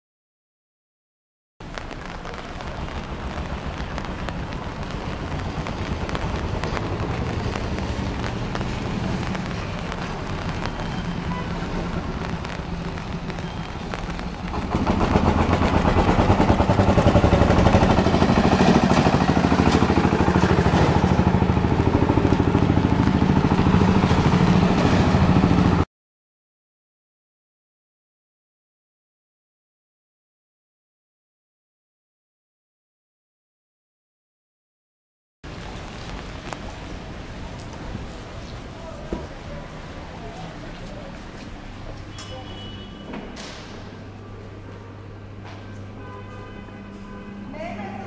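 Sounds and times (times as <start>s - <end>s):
traffic on wet road: 1.6s - 25.9s, 35.5s - 48.0s.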